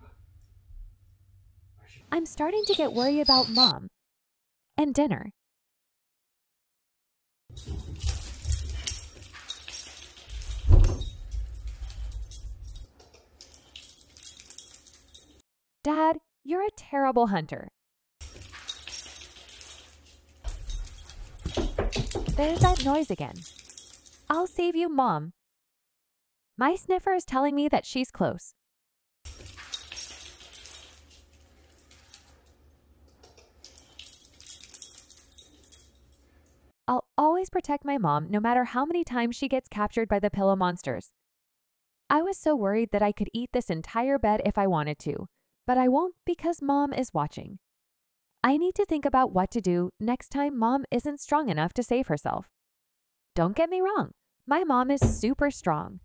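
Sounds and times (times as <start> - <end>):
dog footsteps thumping: 7.5 - 12.9, 18.2 - 24.4, 55.0 - 55.6
collar tag jingling: 7.5 - 15.4, 18.2 - 24.6, 29.3 - 36.6.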